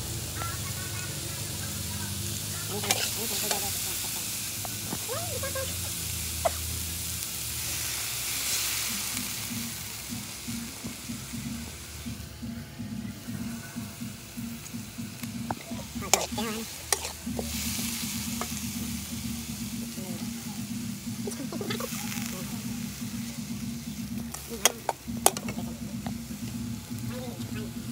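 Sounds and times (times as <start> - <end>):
vegetables sizzling in a wok: 0.0 - 27.9
metal spatula scraping a wok: 2.8 - 4.1, 15.5 - 19.1.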